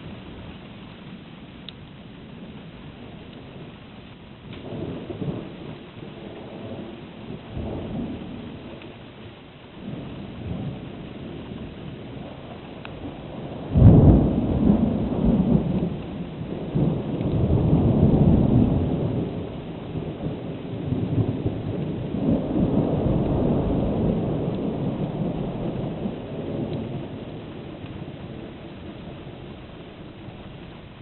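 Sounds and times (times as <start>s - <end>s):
rolling thunder rumbles: 0.0s - 31.0s
thunder crack: 13.4s - 27.1s.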